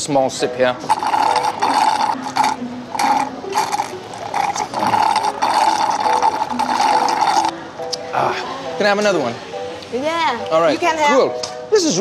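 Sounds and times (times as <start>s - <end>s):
slurping through a straw: 0.8s - 7.5s.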